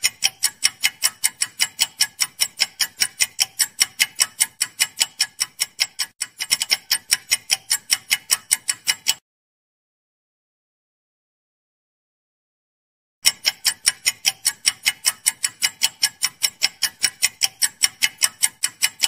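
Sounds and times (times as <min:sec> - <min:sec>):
clock ticking: 0:00.0 - 0:09.2, 0:13.2 - 0:19.0.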